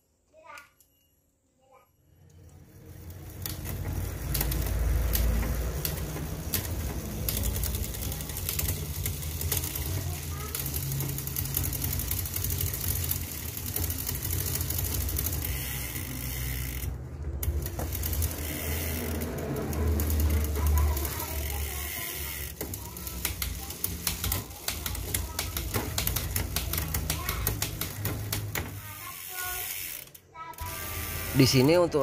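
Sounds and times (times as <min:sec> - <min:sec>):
bicycle chain running with hum: 0:02.0 - 0:32.0
freehub clicking rapidly: 0:02.5 - 0:31.9.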